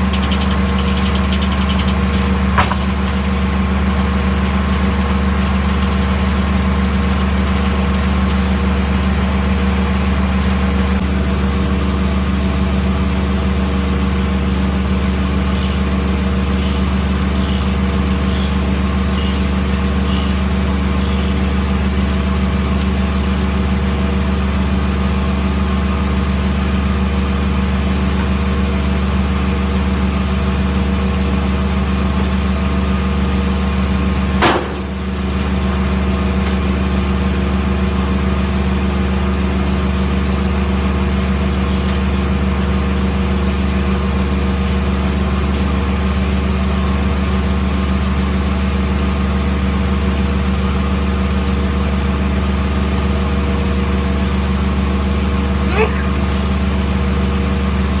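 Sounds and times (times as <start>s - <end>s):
sawmill engine running: 0.0s - 58.0s
sharp knock: 34.4s - 35.0s.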